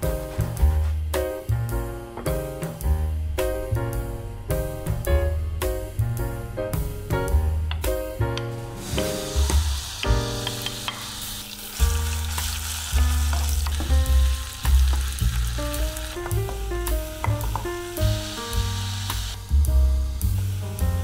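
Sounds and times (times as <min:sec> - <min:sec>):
background music with bass line: 0:00.0 - 0:11.2, 0:11.8 - 0:21.0
onion sizzling in hot oil: 0:03.5 - 0:21.0
wooden spatula stirring in pan: 0:08.8 - 0:17.7.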